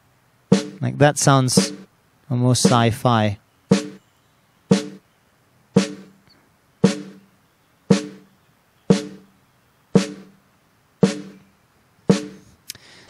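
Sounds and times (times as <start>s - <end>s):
gated snare drum hits: 0.5s - 0.9s, 1.5s - 1.9s, 2.6s - 3.0s, 3.7s - 4.0s, 4.7s - 5.0s, 5.8s - 6.2s, 6.8s - 7.3s, 7.9s - 8.3s, 8.9s - 9.3s, 10.0s - 10.4s, 11.0s - 11.4s, 12.1s - 12.5s.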